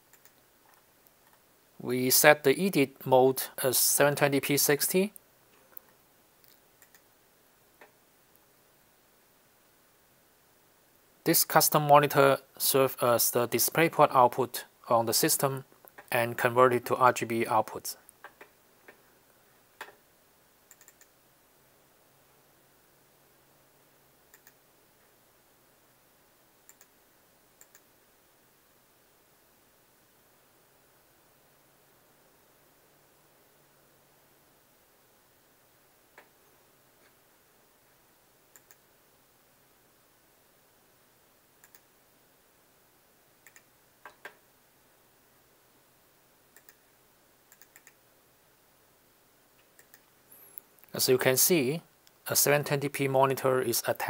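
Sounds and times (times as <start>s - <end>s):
faint steady hiss: 0.0s - 54.0s
computer mouse clicks: 0.1s - 1.4s, 5.7s - 7.1s, 20.7s - 21.2s, 24.3s - 24.6s, 26.6s - 27.0s, 27.6s - 27.9s, 38.5s - 38.8s, 41.6s - 41.9s, 43.4s - 44.4s, 46.6s - 46.8s, 47.5s - 48.0s, 49.6s - 50.9s.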